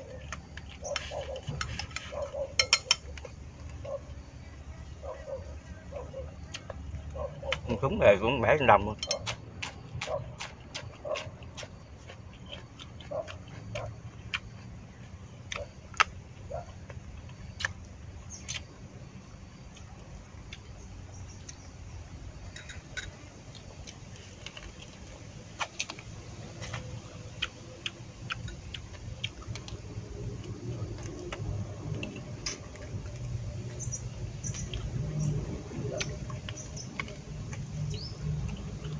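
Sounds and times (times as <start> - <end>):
steady low hum: 0.0 - 38.9
mouth smacks of chewing: 23.6 - 35.0, 35.8 - 38.9.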